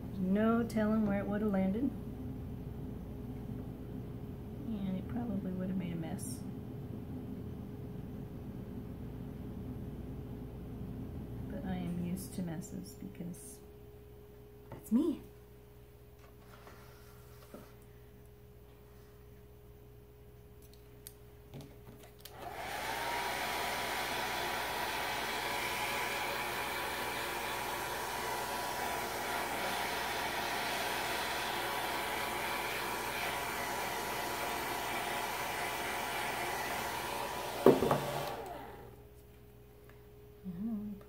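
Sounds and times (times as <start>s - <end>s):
hair dryer whining: 22.2s - 39.0s.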